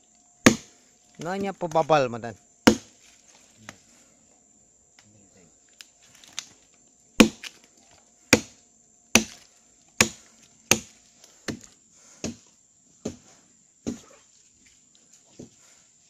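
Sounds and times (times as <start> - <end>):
axe chopping tree trunk: 0.4 - 1.8, 2.6 - 3.0, 7.2 - 7.6, 8.3 - 12.4, 13.0 - 13.2, 13.8 - 14.1.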